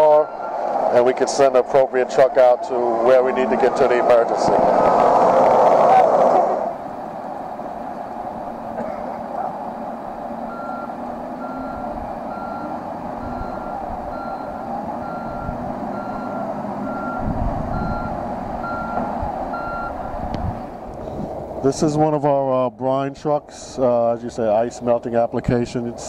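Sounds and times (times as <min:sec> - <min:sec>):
reverse alarm beeping: 0:00.0 - 0:00.6, 0:10.4 - 0:20.0
diesel engine running: 0:00.0 - 0:26.0.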